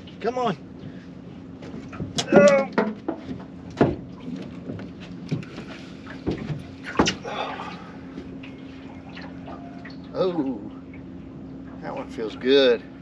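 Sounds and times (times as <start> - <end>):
steady low hum: 0.0 - 13.0
hollow knocks on boat deck: 1.6 - 7.2.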